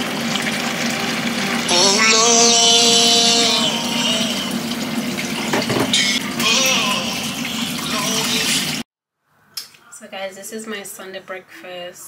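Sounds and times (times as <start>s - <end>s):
tap water running into sink: 0.0s - 8.8s.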